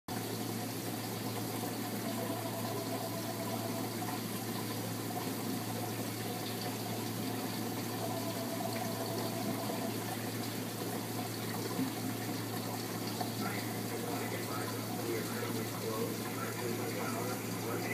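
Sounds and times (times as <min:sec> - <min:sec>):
circulating water rushing: 0:00.1 - 0:17.9
low pump hum: 0:00.1 - 0:17.9.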